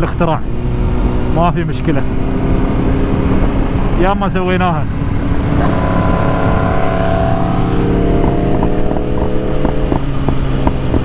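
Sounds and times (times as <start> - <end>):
wind rushing over microphone: 0.0 - 11.0
motorcycle engine running: 4.8 - 11.0.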